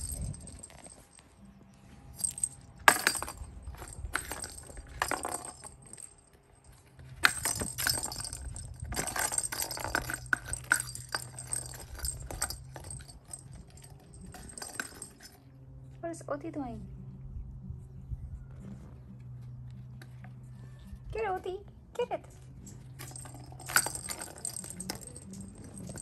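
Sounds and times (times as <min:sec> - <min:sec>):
ball bell jingling and rattling: 0:00.0 - 0:01.3, 0:02.1 - 0:15.5, 0:22.4 - 0:26.0.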